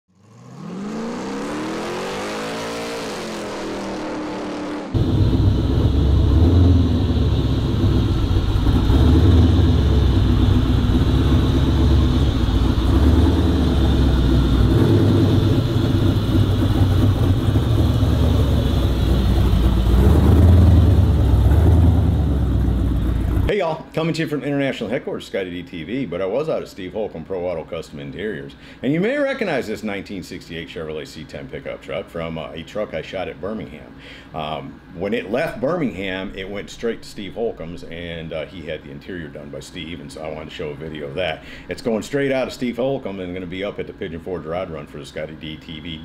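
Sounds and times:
truck engine rumble driving by: 4.9 - 23.5.

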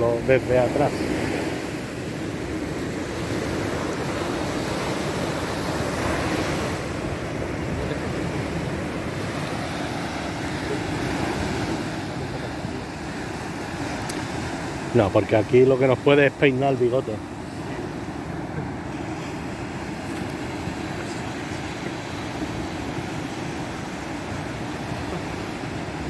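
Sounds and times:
waves washing: 0.0 - 26.0.

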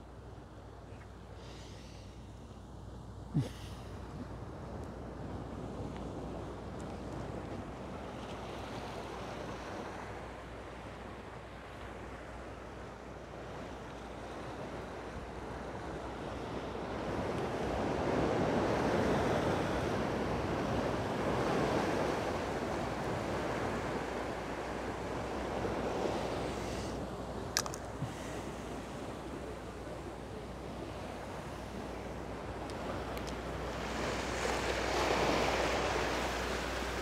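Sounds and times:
surf washing against rocks: 17.4 - 37.0.

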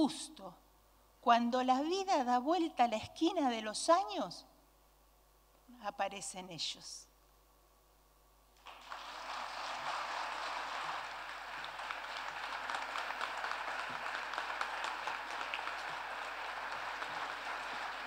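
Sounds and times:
audience applauding: 8.6 - 18.0.

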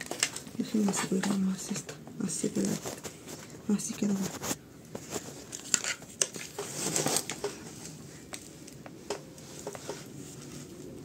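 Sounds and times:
leaves and soil rustling: 2.5 - 8.8.

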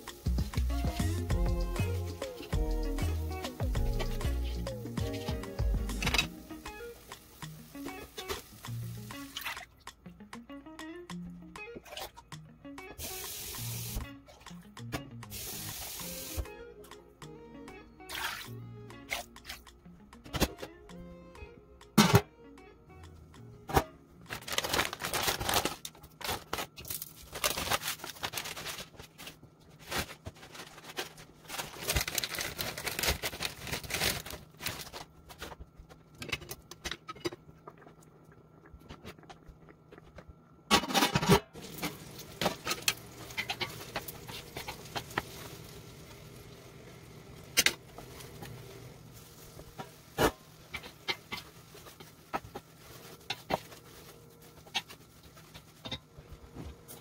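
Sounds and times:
broth boiling in a pot: 0.0 - 10.0, 33.8 - 40.7, 41.5 - 57.0.

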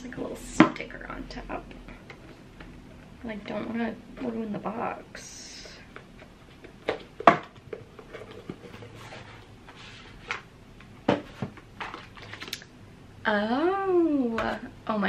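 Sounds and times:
card and paper rustling: 11.2 - 12.6.

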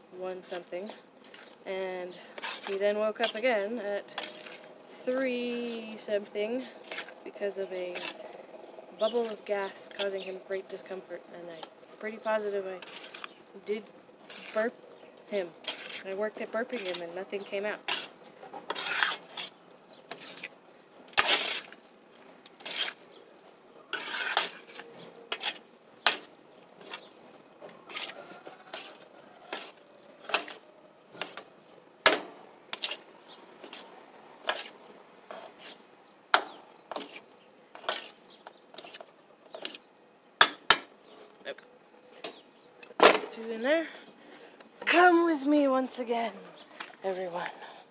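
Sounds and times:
utensils scraping plastic tub: 2.3 - 4.7, 12.8 - 20.5, 21.1 - 21.8, 22.6 - 23.0, 23.9 - 27.1, 36.9 - 39.9.

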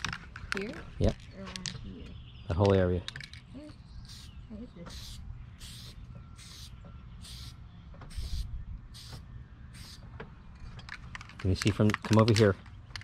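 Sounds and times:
spray paint can hissing: 4.1 - 4.3, 4.9 - 10.0.

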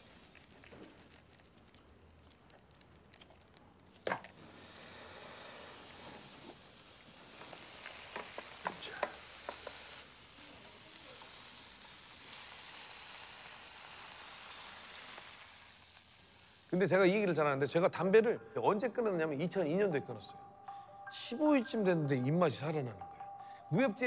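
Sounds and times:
food sizzling in a pan: 0.0 - 1.6, 3.9 - 17.4.

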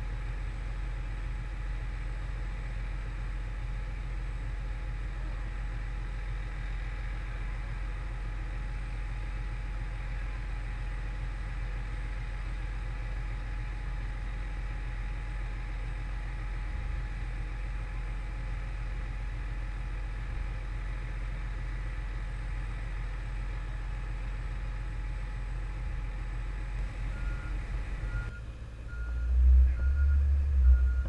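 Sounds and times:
road noise: 0.0 - 31.0
vehicle engine rumble: 0.0 - 31.0.

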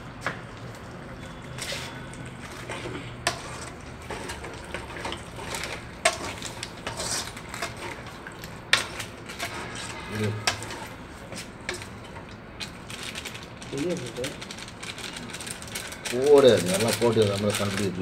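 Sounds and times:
spoon scraping metal pan: 1.6 - 12.0.

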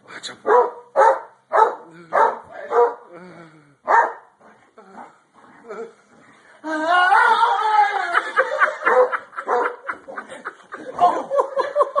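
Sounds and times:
person laughing hard: 6.6 - 12.0.

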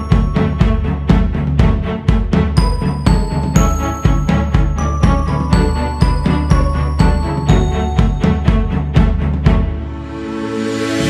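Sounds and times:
background music with steady beat: 0.0 - 11.0
high chiming notes: 2.6 - 9.2.

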